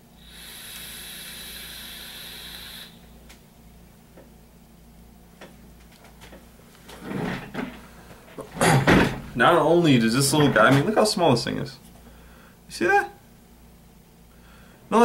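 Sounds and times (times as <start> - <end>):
vaporizer coil hissing: 0.0 - 4.8.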